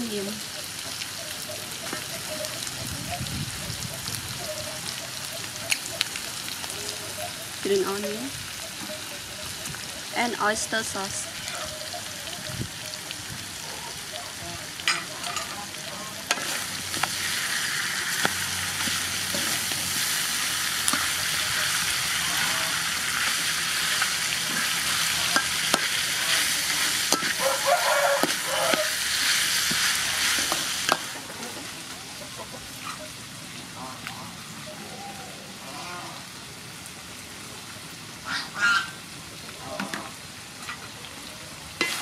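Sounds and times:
food sizzling in a wok: 0:00.0 - 0:42.0.

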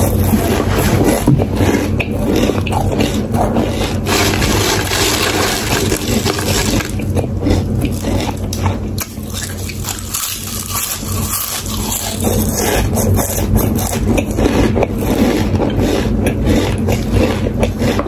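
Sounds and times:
chewing crisp potato chips: 0:00.0 - 0:18.0
chips rustling: 0:03.9 - 0:07.2.

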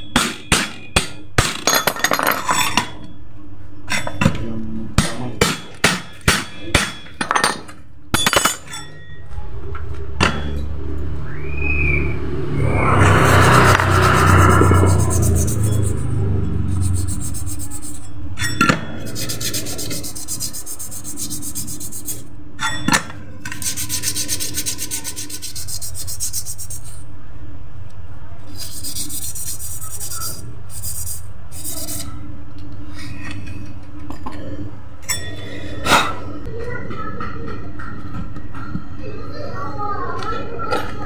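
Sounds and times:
sharp metal knocks: 0:00.0 - 0:03.1, 0:05.0 - 0:08.9, 0:18.4 - 0:19.0
rasping metal scrape: 0:12.7 - 0:27.1, 0:28.5 - 0:32.2.

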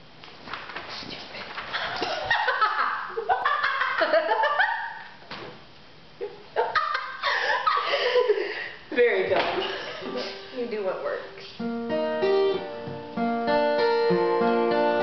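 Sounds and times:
page rustling: 0:00.2 - 0:02.0
woman laughing: 0:01.8 - 0:05.0, 0:06.2 - 0:08.8.

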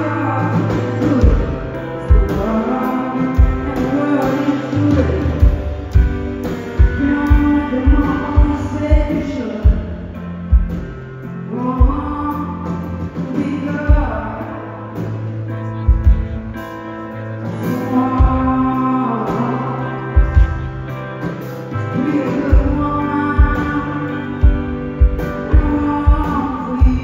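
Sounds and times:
live band music: 0:00.0 - 0:27.0.

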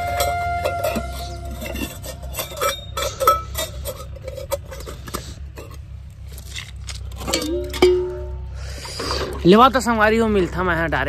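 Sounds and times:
metal dishes clinking: 0:00.0 - 0:05.8, 0:07.2 - 0:09.5.

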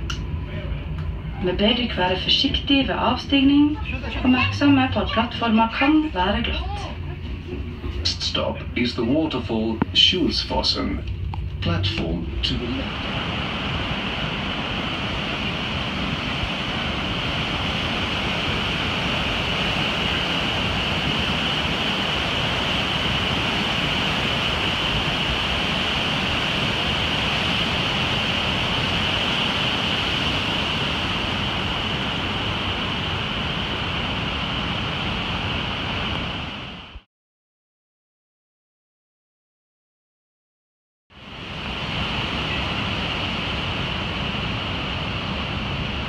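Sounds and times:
waterfall rushing: 0:12.7 - 0:36.8, 0:41.3 - 0:46.0.

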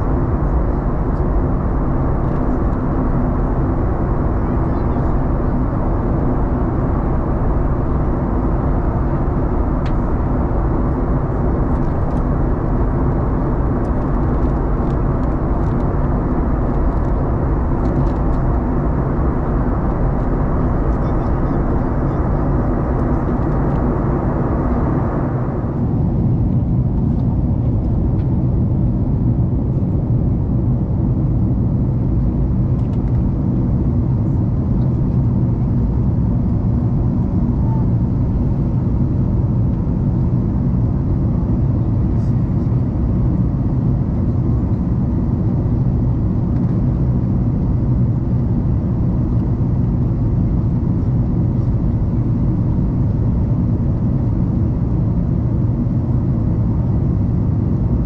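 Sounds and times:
airplane cabin engine rumble: 0:00.0 - 0:58.0
rushing air: 0:05.2 - 0:27.0.

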